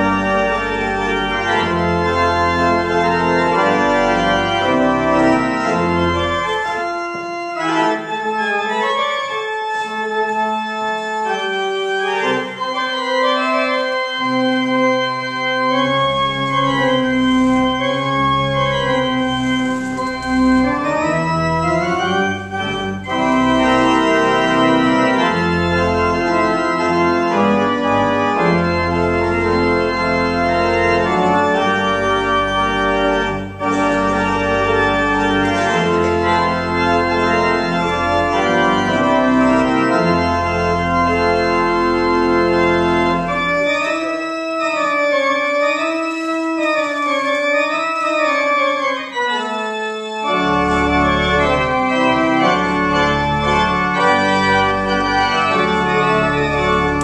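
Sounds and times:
church organ playing chords: 0:00.0 - 0:57.0
deep organ pedal bass notes: 0:00.0 - 0:57.0.

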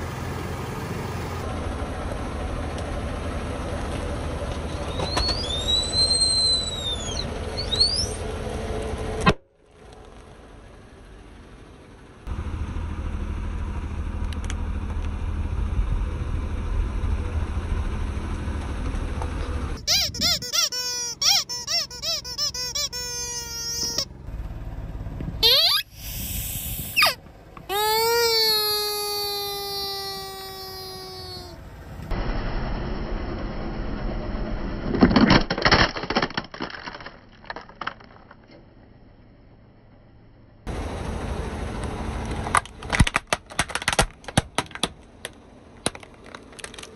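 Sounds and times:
car engine rumbling: 0:00.0 - 0:46.9
plastic toy cracking under tyre: 0:34.9 - 0:38.5, 0:42.4 - 0:46.9.

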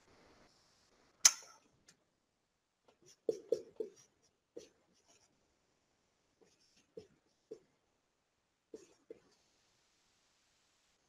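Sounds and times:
marker writing on a whiteboard: 0:02.9 - 0:05.4, 0:06.4 - 0:07.8, 0:08.7 - 0:09.8.

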